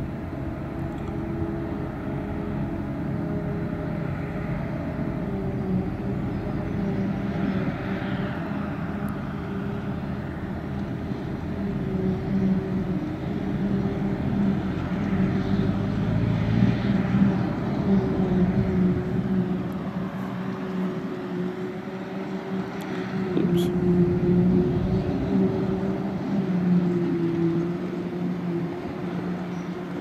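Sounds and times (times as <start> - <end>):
forage harvester engine drone: 0.0 - 30.0.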